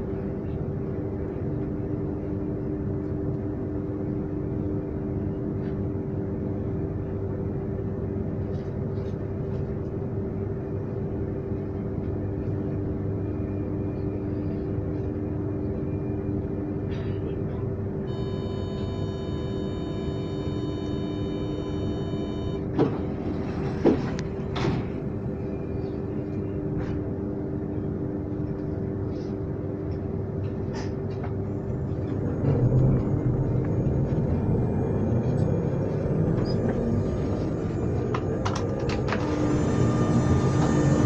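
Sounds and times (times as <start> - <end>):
train rumble: 0.0 - 41.0
high-pitched tone: 18.1 - 22.7.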